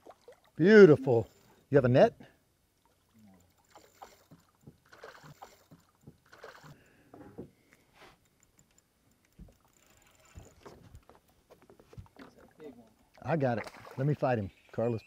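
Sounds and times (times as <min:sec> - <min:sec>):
water splashing against boat: 0:11.9 - 0:14.3.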